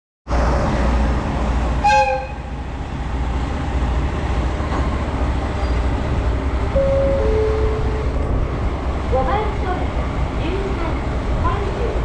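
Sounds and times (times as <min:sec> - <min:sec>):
diesel engine rumble: 0:00.3 - 0:12.0
locomotive horn blast: 0:01.8 - 0:02.6, 0:06.8 - 0:08.2.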